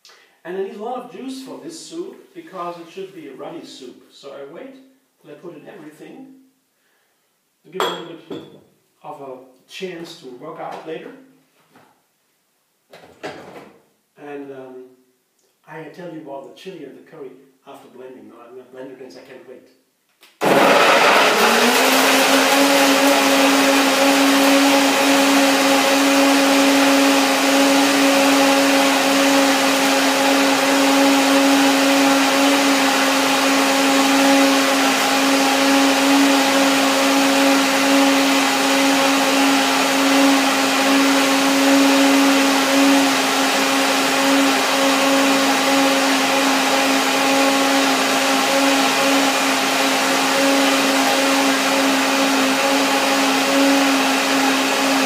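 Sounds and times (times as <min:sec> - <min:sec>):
blender motor running: 0:20.4 - 0:55.0.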